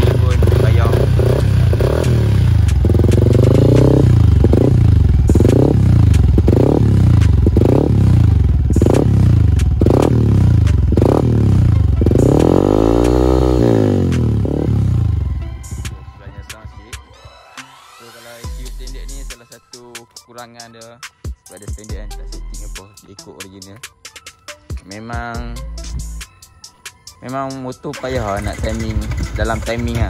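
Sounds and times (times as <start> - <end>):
motorcycle engine revving: 0.0 - 16.0, 28.1 - 30.0.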